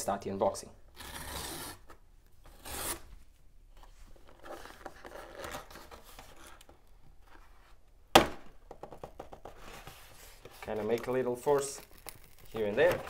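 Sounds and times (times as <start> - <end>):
cardboard scraping and rubbing: 9.5 - 13.0
cardboard tearing: 10.8 - 13.0.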